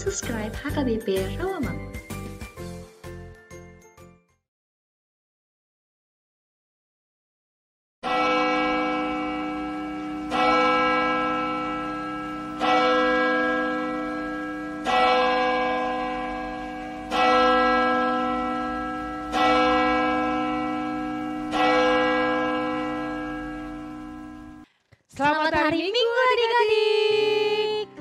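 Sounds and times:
church bell tolling: 0:08.0 - 0:24.6.

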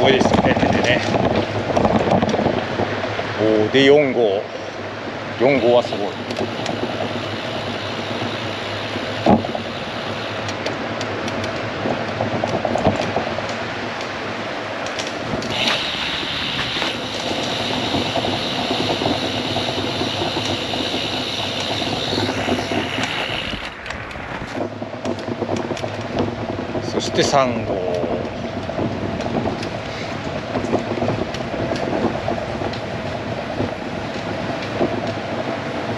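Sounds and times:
tyres rolling on tarmac: 0:00.0 - 0:35.9
wind on microphone: 0:00.0 - 0:35.9
high steady hiss: 0:03.2 - 0:11.8, 0:13.4 - 0:24.8.

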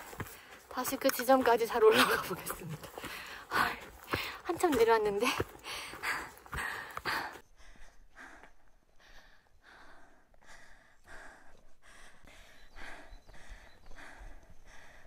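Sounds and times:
person breathing hard: 0:02.9 - 0:04.5, 0:05.4 - 0:15.0.

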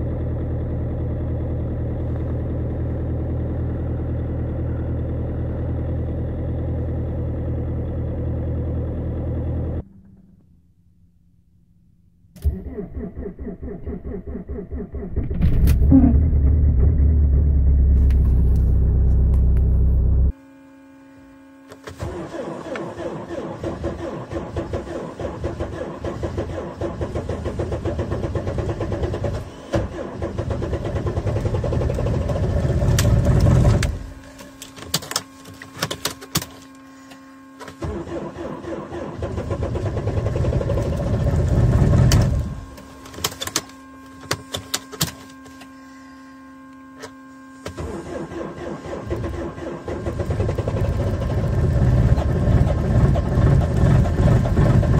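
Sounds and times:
diesel engine starter cranking: 0:12.3 - 0:20.3, 0:21.9 - 0:36.7, 0:37.6 - 0:43.7, 0:47.6 - 0:54.9.

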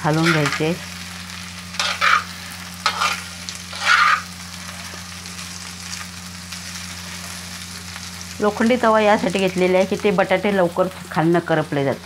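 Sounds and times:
potatoes sizzling in oil: 0:00.0 - 0:12.0
spatula scraping on iron pan: 0:00.2 - 0:00.7, 0:01.7 - 0:05.0.

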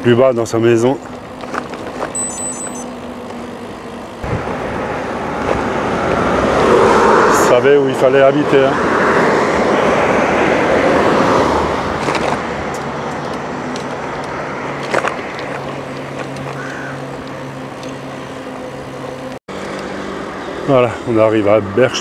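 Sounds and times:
road and wind rush: 0:00.8 - 0:22.0
car passing by: 0:04.2 - 0:15.6.

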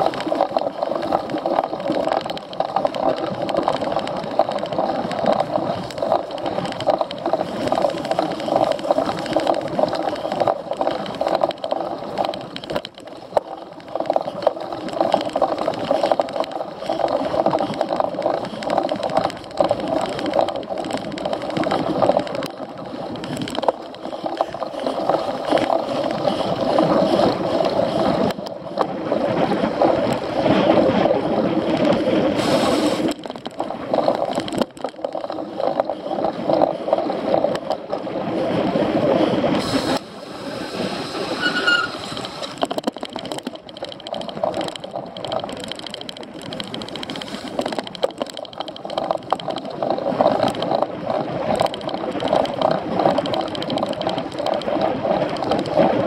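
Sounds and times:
bike rattling rush: 0:00.0 - 0:56.0.

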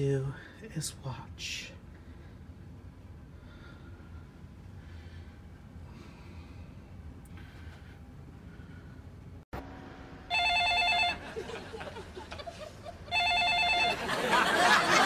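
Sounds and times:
telephone ringing: 0:10.3 - 0:11.4, 0:13.1 - 0:14.4.

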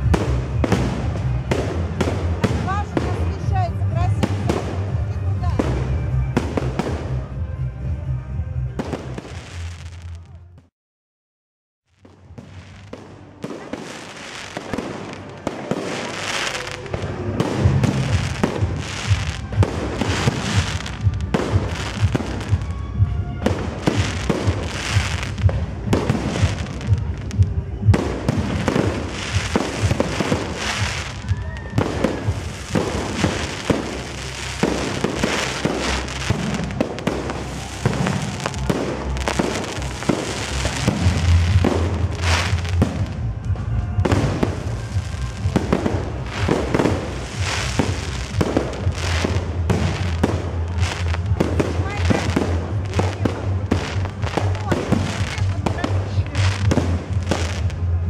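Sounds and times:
fireworks bursts and bangs: 0:00.0 - 0:07.9, 0:08.6 - 0:10.7, 0:12.0 - 0:58.0.

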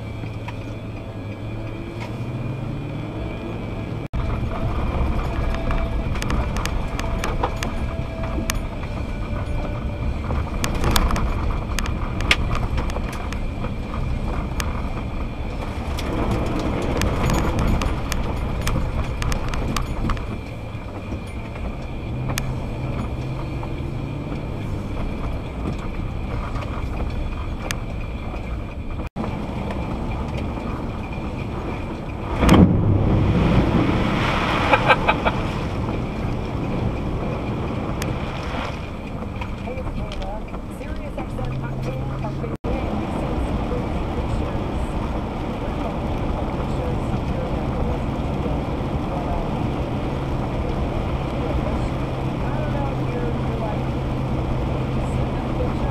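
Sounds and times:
car engine and tyres rumbling: 0:00.0 - 0:55.9.

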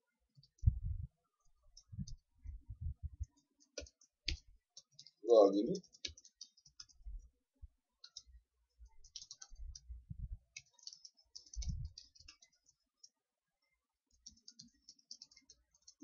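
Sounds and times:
computer keyboard typing: 0:03.2 - 0:07.2, 0:08.0 - 0:09.9, 0:10.5 - 0:13.2, 0:14.1 - 0:16.0.

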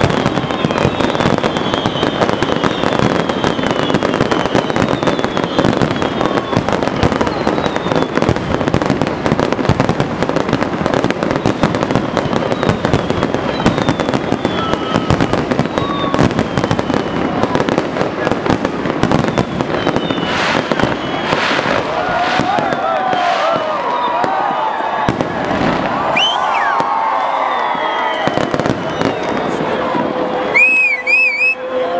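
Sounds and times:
falling whistles: 0:00.0 - 0:08.4, 0:11.3 - 0:17.5, 0:19.1 - 0:24.4, 0:26.1 - 0:29.3, 0:30.5 - 0:31.6
loud fireworks bangs: 0:00.0 - 0:30.9
fireworks bursts and crackling: 0:00.0 - 0:31.9.

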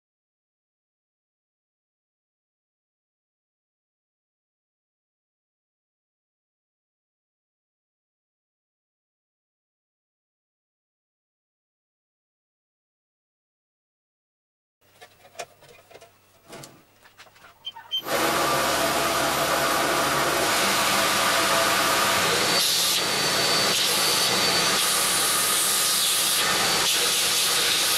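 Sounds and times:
belt grinder running: 0:18.0 - 0:27.9.

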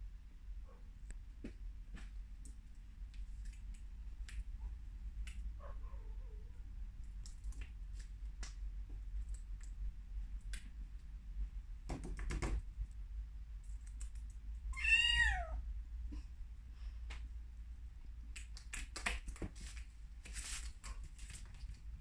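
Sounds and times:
kitten meowing: 0:14.7 - 0:15.6.

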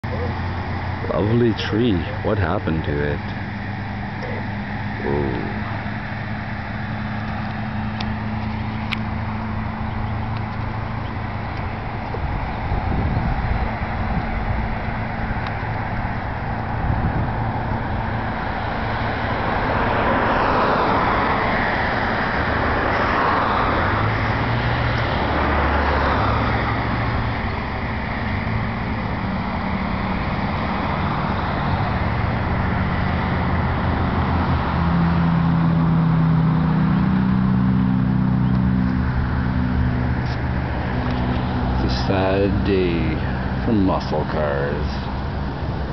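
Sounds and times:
cars passing by: 0:00.0 - 0:45.9
vehicle engine humming: 0:00.0 - 0:45.9.

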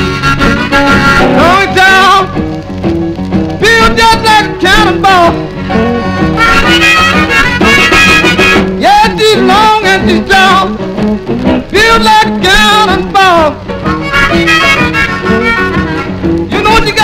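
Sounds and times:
blues record playing: 0:00.0 - 0:17.0
man singing over band: 0:01.4 - 0:02.4, 0:03.6 - 0:05.5, 0:08.8 - 0:10.8, 0:11.7 - 0:13.6, 0:16.5 - 0:17.0.

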